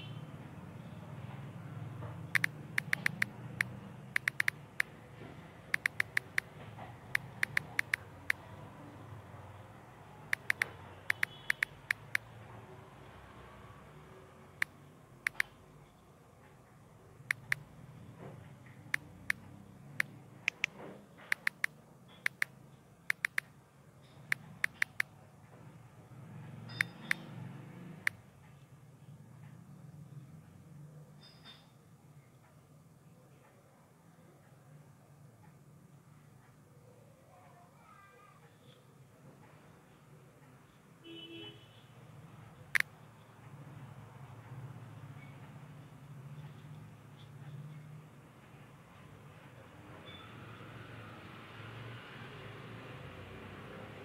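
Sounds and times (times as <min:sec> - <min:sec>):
smartphone keyboard clicks: 0:02.3 - 0:04.9, 0:05.7 - 0:06.5, 0:07.1 - 0:08.4, 0:10.3 - 0:12.3, 0:14.6 - 0:15.6, 0:17.3 - 0:17.6, 0:18.9 - 0:22.5, 0:23.1 - 0:23.5, 0:24.3 - 0:25.1.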